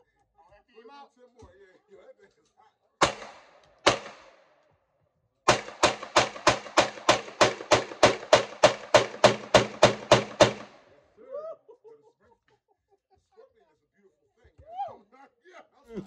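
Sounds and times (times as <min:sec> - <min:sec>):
rapid gunshots with echo: 0:03.0 - 0:04.4, 0:05.5 - 0:11.0.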